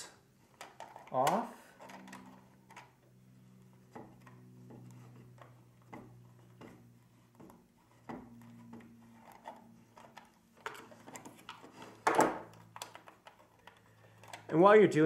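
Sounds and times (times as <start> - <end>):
metal scraping on wood: 3.4 - 12.1.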